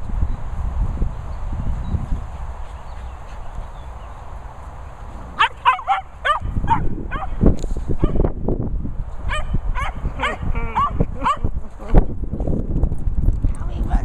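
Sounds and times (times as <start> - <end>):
dog yapping: 5.4 - 7.4.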